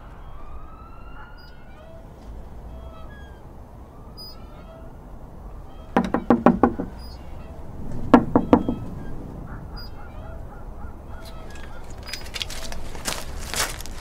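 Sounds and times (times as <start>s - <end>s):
knuckles knocking on wooden door: 6.0s - 7.1s, 8.1s - 8.9s.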